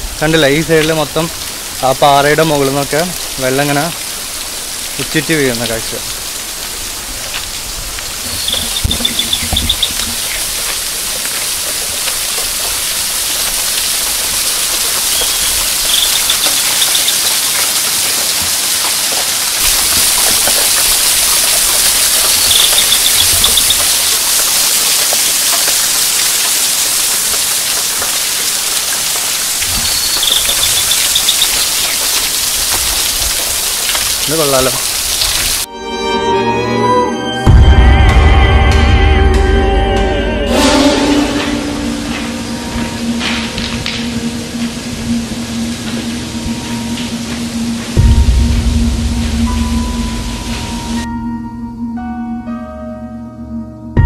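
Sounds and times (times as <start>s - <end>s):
water splashing onto rocks: 0.0s - 35.7s
high chirping trill: 8.3s - 10.4s, 15.1s - 17.6s, 22.1s - 24.0s, 29.8s - 32.0s.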